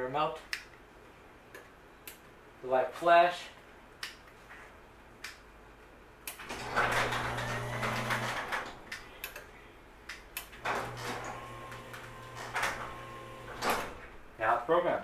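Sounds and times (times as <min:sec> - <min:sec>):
garage door opener click: 0:06.3 - 0:09.4, 0:10.4 - 0:14.2
garage door motor humming: 0:06.3 - 0:09.5, 0:10.3 - 0:14.4.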